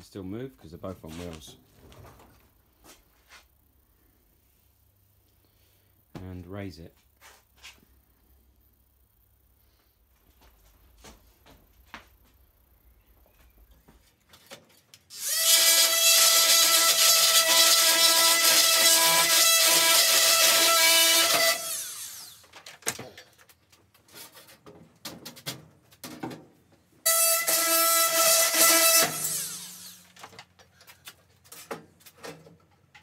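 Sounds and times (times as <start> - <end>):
power tool motor running: 15.1 - 22.4, 27.1 - 30.1.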